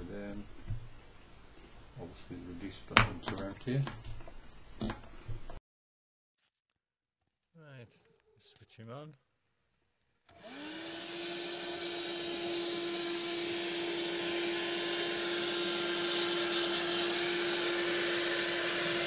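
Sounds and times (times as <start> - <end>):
vacuum cleaner motor running: 10.3 - 19.0.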